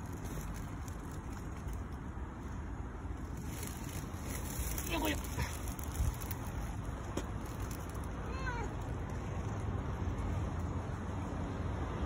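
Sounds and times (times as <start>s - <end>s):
cat meowing: 8.2s - 8.8s.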